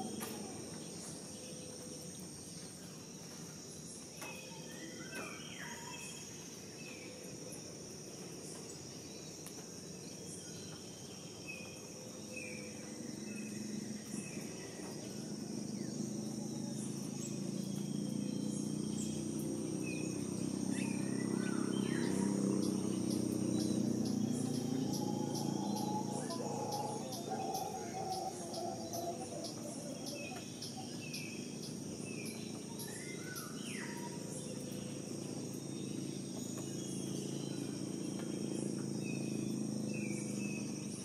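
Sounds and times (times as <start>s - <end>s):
insects droning: 0.0s - 41.0s
low rumble: 21.5s - 30.6s.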